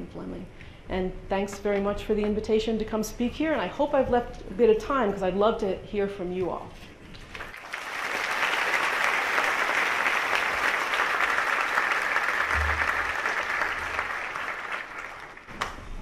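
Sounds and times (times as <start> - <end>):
audience applauding: 7.3 - 15.7.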